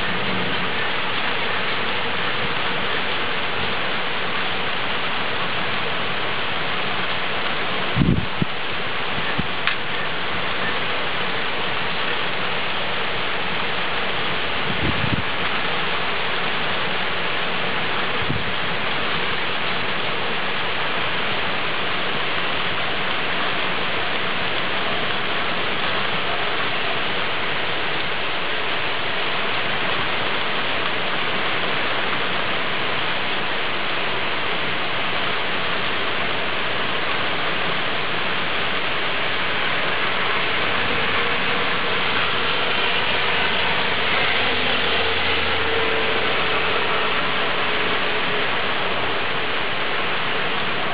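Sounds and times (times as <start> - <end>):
heavy rain pouring: 0.0 - 50.9.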